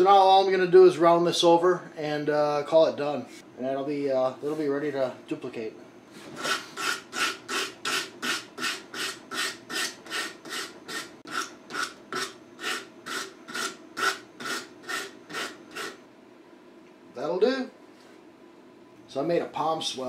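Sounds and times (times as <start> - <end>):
sandpaper rubbing on wood: 6.4 - 16.0.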